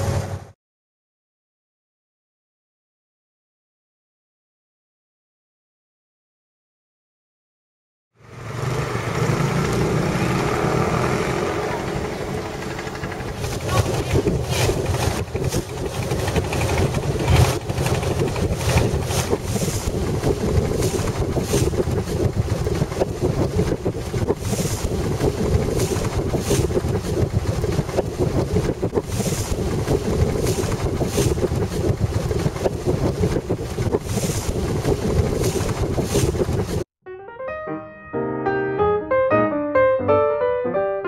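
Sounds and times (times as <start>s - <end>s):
boat engine running: 0.0s - 0.6s, 8.3s - 36.9s
wind gusting on microphone: 8.9s - 36.9s.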